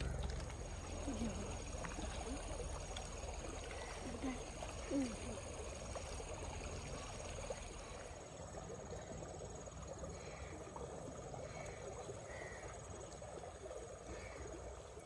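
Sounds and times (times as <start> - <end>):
insects trilling: 0.0 - 15.0.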